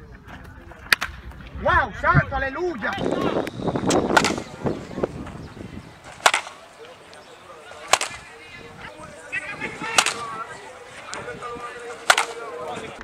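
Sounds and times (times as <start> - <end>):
baseball bat hitting balls: 2.9 - 13.0.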